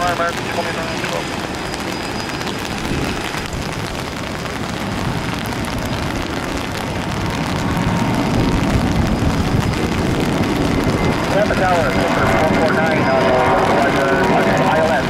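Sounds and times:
heavy rain hissing: 0.0s - 15.0s
jet engines rumbling on takeoff: 0.0s - 15.0s.

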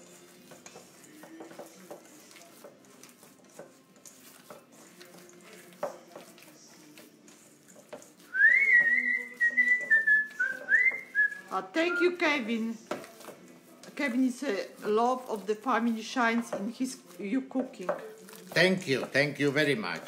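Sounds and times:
hands squishing meat mixture: 0.0s - 20.0s
person whistling: 8.3s - 12.0s.

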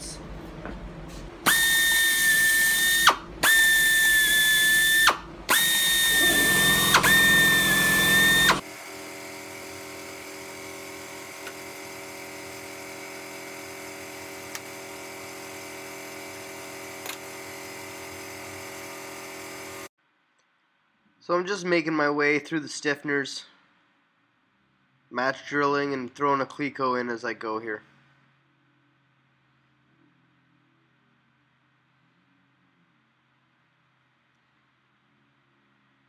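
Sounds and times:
air drill whining: 1.4s - 19.9s
drill cutting metal: 1.4s - 19.9s.

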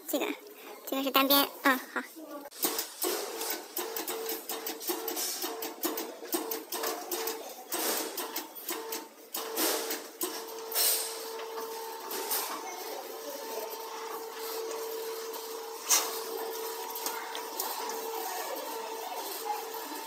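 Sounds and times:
machine rollers humming: 2.5s - 20.0s
sheet metal clicking and rattling: 2.6s - 11.6s.

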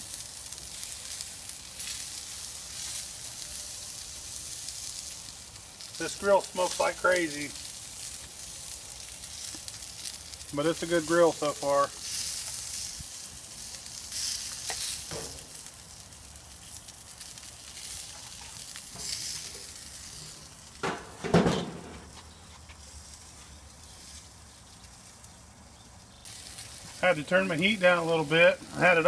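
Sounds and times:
chicken sizzling on grill: 0.0s - 29.0s
sauce spitting and crackling: 4.2s - 20.7s.

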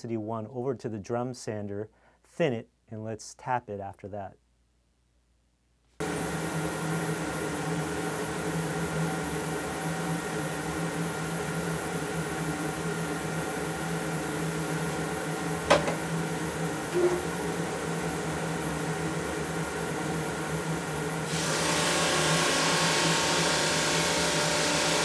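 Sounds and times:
dust collector humming: 6.0s - 25.0s
dust hood shutting clack: 15.6s - 16.1s, 16.9s - 17.4s.

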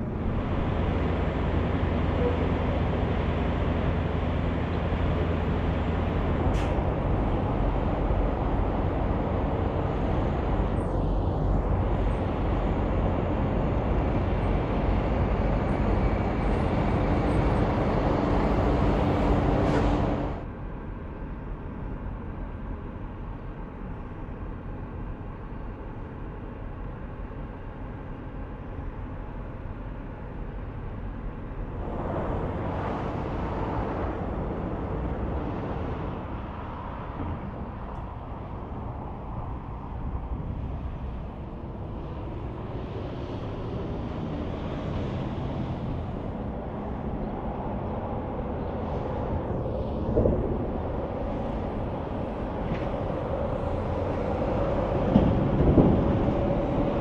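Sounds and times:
trucks passing on highway: 0.0s - 20.5s, 25.6s - 57.0s
steady traffic noise: 0.0s - 57.0s
vehicle passing: 31.8s - 57.0s.

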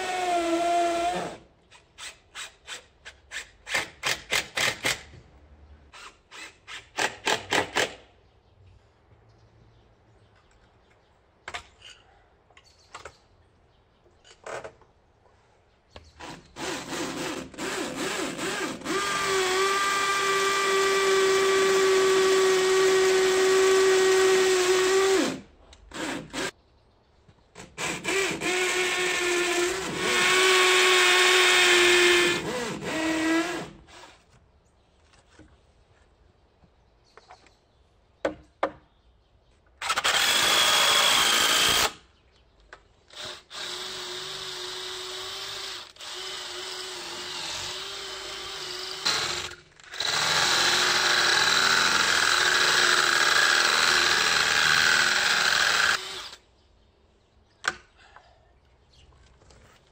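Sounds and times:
power drill boring into brick: 16.2s - 26.5s, 39.8s - 42.0s, 43.1s - 56.4s.

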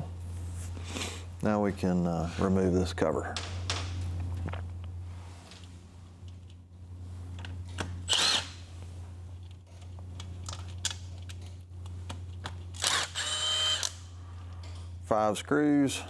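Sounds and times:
low steady hum: 0.0s - 16.0s
cordless driver whining: 7.7s - 8.6s, 12.7s - 14.0s.

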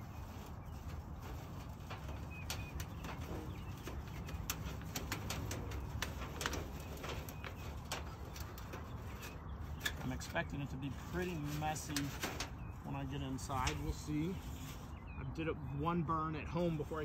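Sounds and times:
bird chirps: 12.5s - 15.9s.

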